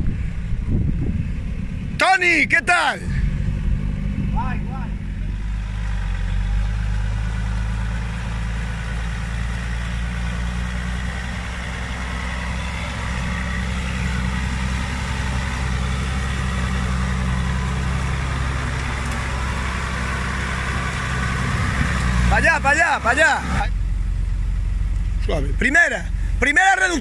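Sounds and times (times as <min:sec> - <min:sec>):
engine running at low revs: 0:00.0 - 0:27.0.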